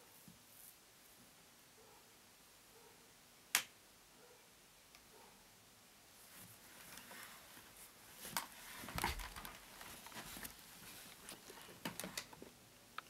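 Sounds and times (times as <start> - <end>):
handling clicks and rustles: 6.3 - 13.0.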